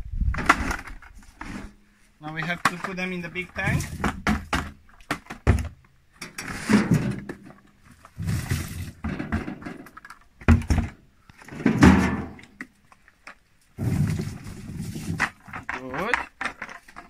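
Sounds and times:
plums tumbling into plastic barrel: 0:00.3 - 0:17.0
buckets knocking against barrel: 0:02.3 - 0:05.8, 0:06.7 - 0:12.7.

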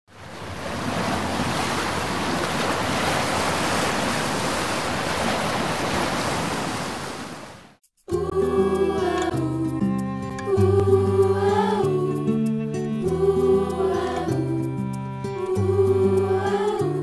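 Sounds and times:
ocean waves breaking: 0:00.1 - 0:07.8
music: 0:08.0 - 0:17.0.

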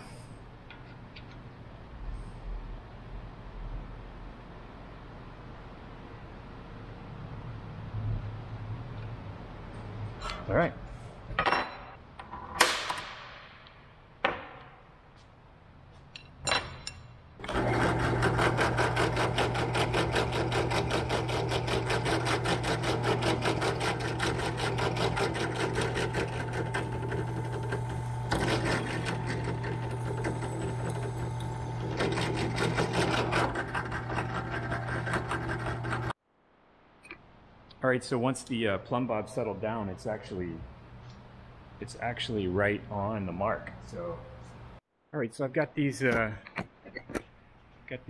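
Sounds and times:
drill press motor whirring: 0:17.4 - 0:36.2.

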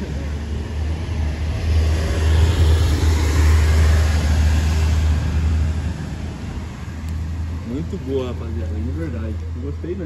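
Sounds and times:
low traffic rumble: 0:00.0 - 0:10.0
vehicle passing: 0:00.0 - 0:10.0.

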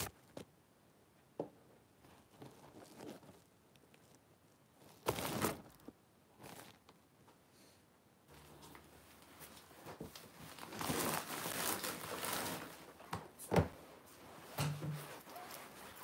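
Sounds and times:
phone rustling against clothing: 0:02.0 - 0:07.0.

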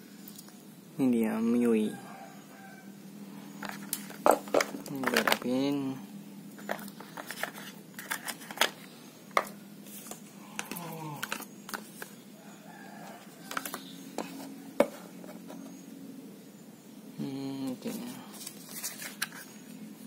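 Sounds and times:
cardboard and paper handled: 0:06.6 - 0:08.8, 0:09.4 - 0:12.2, 0:13.1 - 0:15.8, 0:17.8 - 0:19.7.

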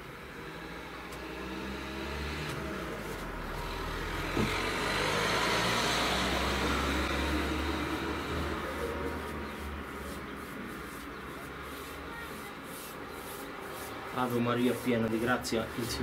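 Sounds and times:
vehicle engine rumble passing: 0:00.0 - 0:12.0
road noise: 0:00.0 - 0:16.0.

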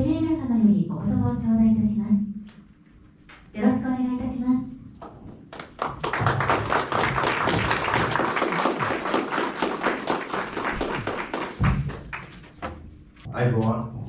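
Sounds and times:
audience clapping: 0:05.0 - 0:12.8.

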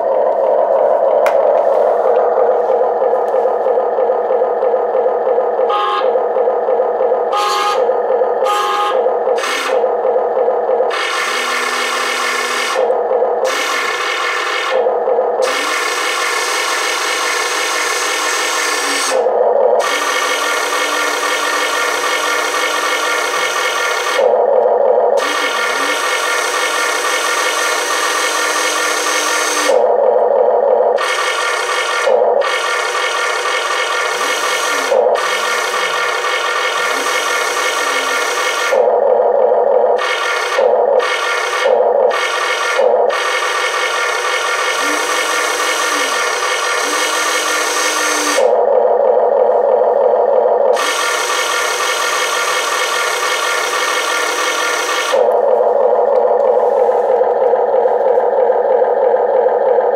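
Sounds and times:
toy excavator electric motors: 0:07.2 - 0:30.0, 0:30.9 - 0:39.0, 0:39.9 - 0:48.7, 0:49.5 - 0:59.9.

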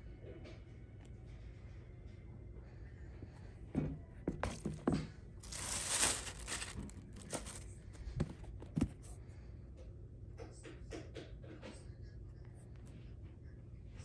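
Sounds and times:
wrapping paper crinkling: 0:05.4 - 0:07.8.

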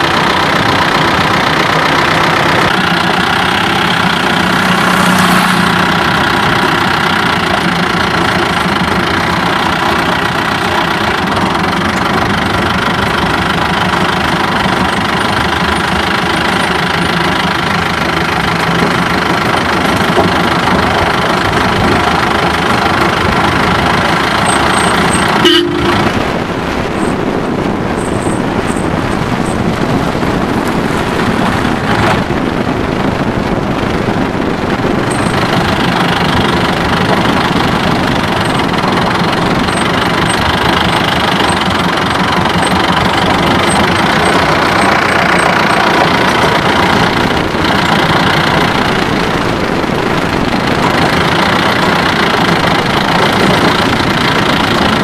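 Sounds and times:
vehicle on gravel road: 0:00.0 - 0:55.0
car horn toot: 0:25.1 - 0:26.3.

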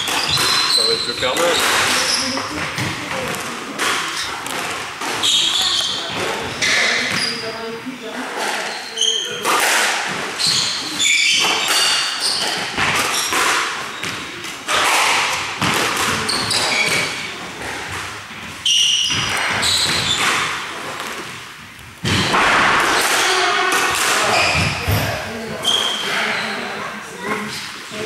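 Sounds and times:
shoes squeaking on wooden floor: 0:00.0 - 0:09.4, 0:10.1 - 0:14.4, 0:16.1 - 0:20.5, 0:24.2 - 0:28.0
squash ball hitting rackets and walls: 0:00.0 - 0:26.4.

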